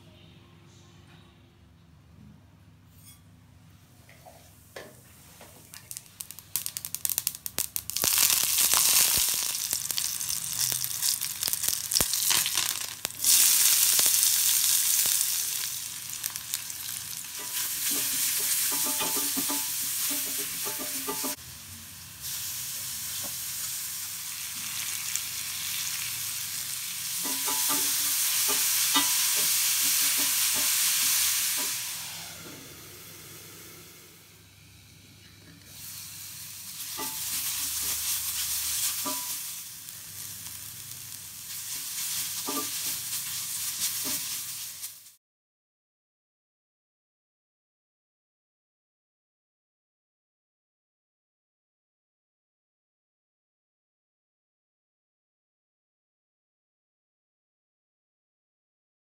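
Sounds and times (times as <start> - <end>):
spatula scraping cast iron: 2.9 - 3.2, 17.4 - 21.4, 27.2 - 30.7, 36.9 - 39.4
food sizzling in a skillet: 5.2 - 34.4, 35.6 - 45.2
seeds crackling and popping in oil: 5.6 - 21.4, 24.3 - 31.8, 36.7 - 45.2.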